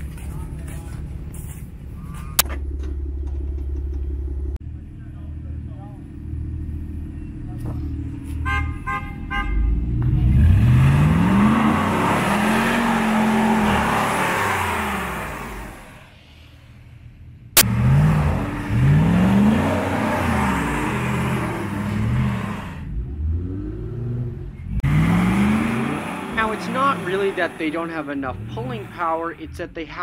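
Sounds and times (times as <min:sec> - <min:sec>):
pickup engine revving hard: 0:09.6 - 0:16.0, 0:17.6 - 0:29.5
tires spinning on ice: 0:10.1 - 0:16.9, 0:17.6 - 0:23.8, 0:24.8 - 0:29.5.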